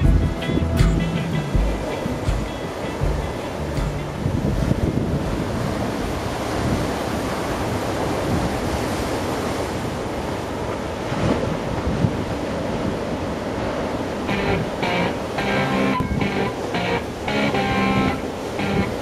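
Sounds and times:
wind on microphone: 0.0s - 9.1s, 11.1s - 13.0s
waves breaking: 0.0s - 19.0s.

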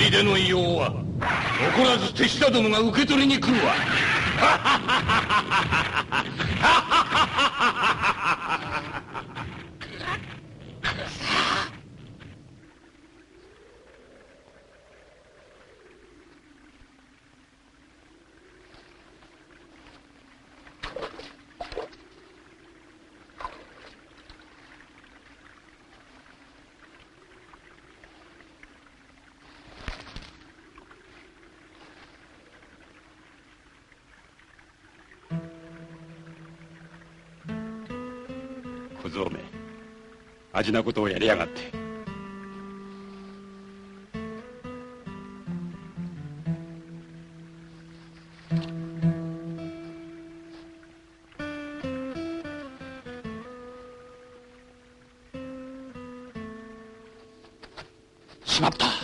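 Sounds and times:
stream water running: 0.0s - 59.0s
villain laughing: 4.0s - 10.3s.

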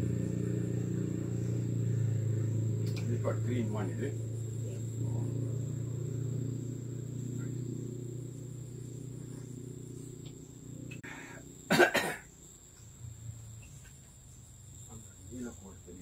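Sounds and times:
low steady hum: 0.0s - 16.0s
person coughing: 11.7s - 12.3s.

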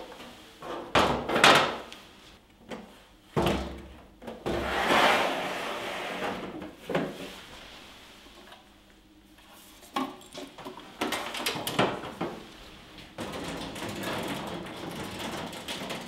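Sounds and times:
machine scraping on steel shelf: 4.6s - 6.4s.

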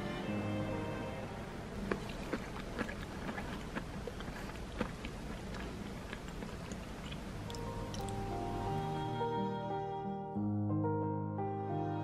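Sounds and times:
person chewing soft food: 1.8s - 8.4s.

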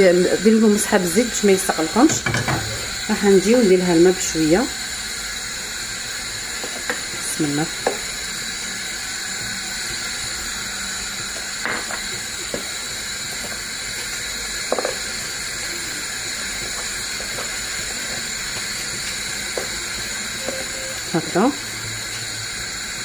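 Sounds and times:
wooden spoon stirring pasta: 16.2s - 20.8s.

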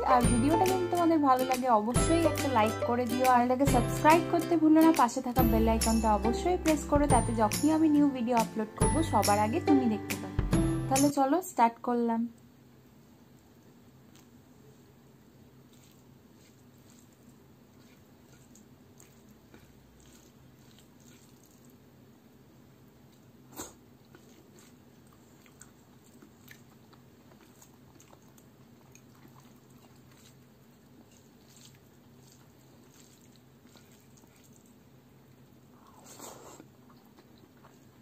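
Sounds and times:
low steady hum: 0.0s - 35.9s
fingers squishing food: 15.6s - 21.9s, 23.0s - 38.0s.

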